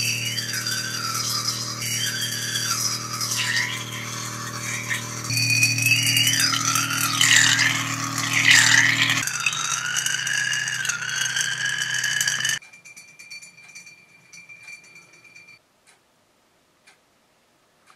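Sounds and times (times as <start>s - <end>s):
small electric motor rattling: 0.0s - 13.8s
faint clicks and ticks: 4.6s - 16.1s, 16.8s - 17.1s.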